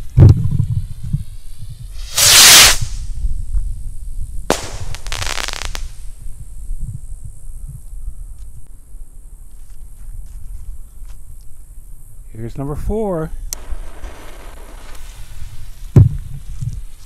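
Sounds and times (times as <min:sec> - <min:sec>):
firework rocket hiss: 0:00.6 - 0:03.2, 0:04.5 - 0:06.3, 0:13.6 - 0:16.5
firework crackles: 0:00.8 - 0:03.2, 0:04.5 - 0:06.3, 0:13.6 - 0:16.5
firework bang: 0:02.0 - 0:03.0, 0:04.5 - 0:06.0, 0:13.6 - 0:16.2
firework launch thump: 0:02.0 - 0:03.0, 0:04.5 - 0:06.0.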